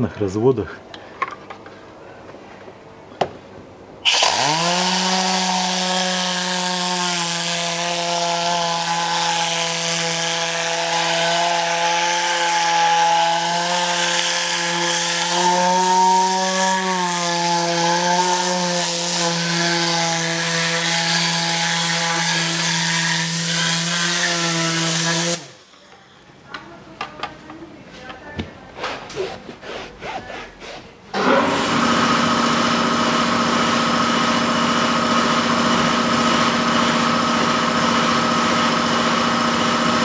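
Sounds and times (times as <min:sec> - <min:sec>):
air cleaning gun hissing: 0:04.0 - 0:05.1
spinning nozzle buzzing: 0:04.0 - 0:05.1.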